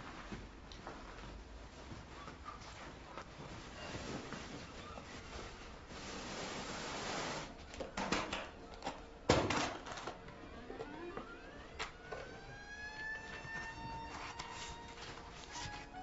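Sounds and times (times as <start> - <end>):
soft rising musical tones: 10.2 - 16.0.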